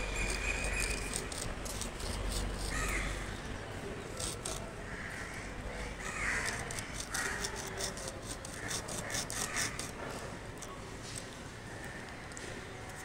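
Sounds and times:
steady background noise: 0.0 - 13.0
crows cawing: 4.9 - 7.5, 8.5 - 9.9.

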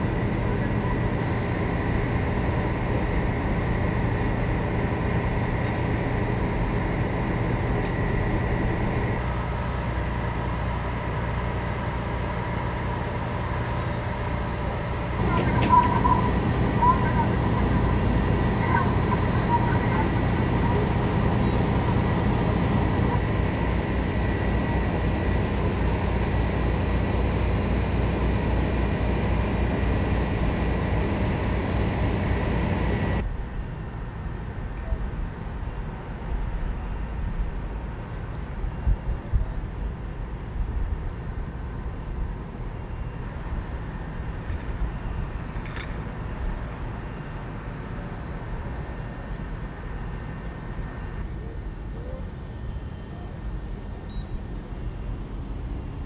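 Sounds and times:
fire truck engine running: 0.0 - 56.0
high steady whine: 0.0 - 56.0
low outdoor rumble: 0.0 - 56.0.

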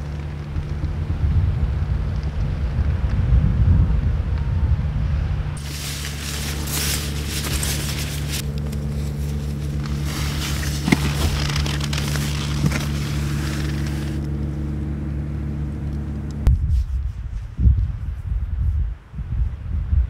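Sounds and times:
strong wind buffeting: 0.0 - 14.3, 16.4 - 20.0
low mechanical hum: 0.0 - 20.0
tent fabric rustling: 5.6 - 14.3.

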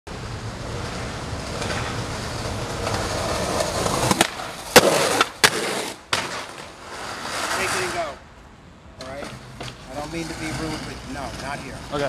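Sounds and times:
skateboard wheels rolling on concrete: 0.1 - 12.0
skateboard landing slap: 3.9 - 6.7.

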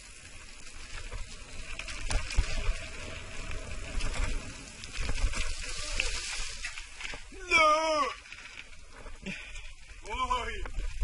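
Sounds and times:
tyres crunching over stones: 0.0 - 11.0
wind rumble on microphone: 9.9 - 11.0.

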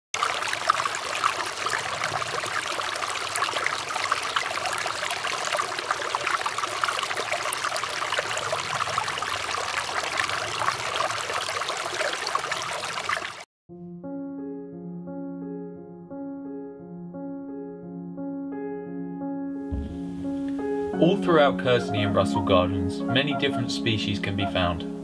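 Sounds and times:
stream water babbling: 0.2 - 13.5.

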